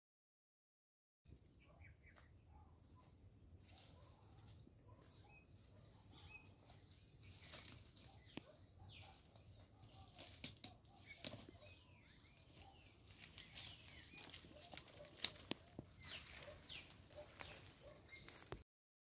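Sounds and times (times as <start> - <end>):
birds calling: 1.4 - 3.1, 4.9 - 18.6
twigs snapping in leaves: 10.1 - 11.4, 12.5 - 16.5.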